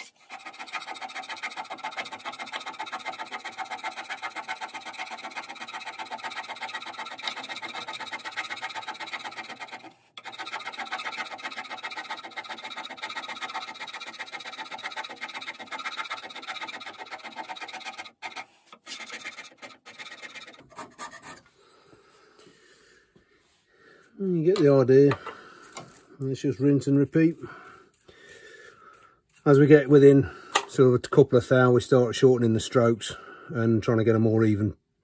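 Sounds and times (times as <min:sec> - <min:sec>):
scraper strokes on cast iron: 0:00.0 - 0:21.4.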